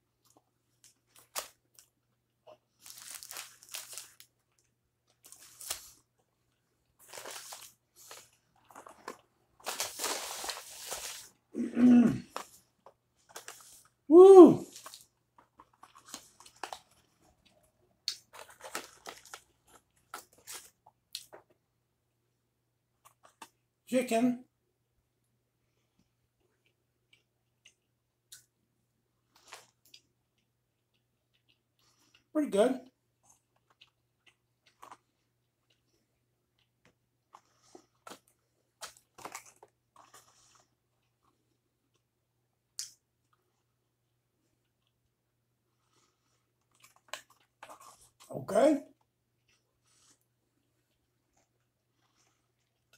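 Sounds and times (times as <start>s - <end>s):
quiet chewing: 0.0s - 11.4s, 14.7s - 21.6s, 25.6s - 28.5s, 29.2s - 32.3s, 32.9s - 48.3s, 48.9s - 52.9s
cardboard carton rustling: 7.0s - 11.3s.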